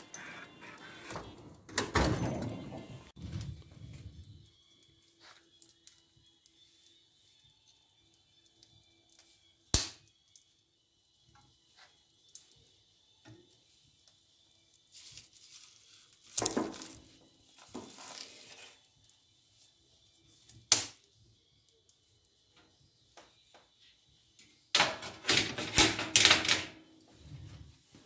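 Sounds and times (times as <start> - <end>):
log scraping and rustling: 17.6 - 18.9.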